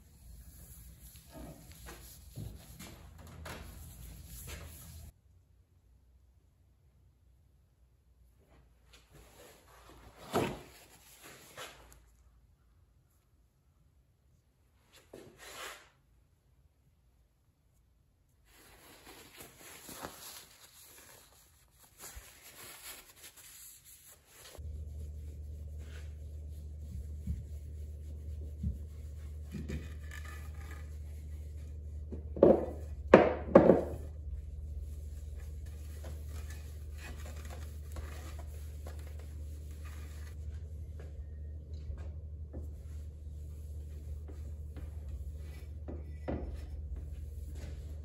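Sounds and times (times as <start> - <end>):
cloth rubbing on metal: 0.0 - 5.1, 18.5 - 33.1, 33.8 - 40.4
steady low hum: 24.5 - 48.0.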